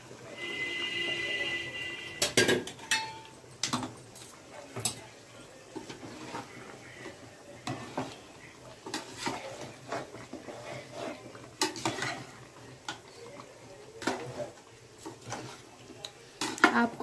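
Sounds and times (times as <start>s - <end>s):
ladle clanking against metal pot: 2.2s - 5.0s
ladle scraping through curry: 4.3s - 16.7s.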